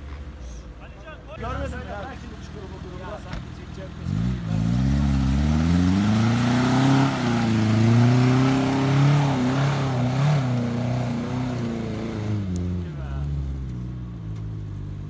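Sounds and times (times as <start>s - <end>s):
car engine revving hard: 4.0s - 13.4s.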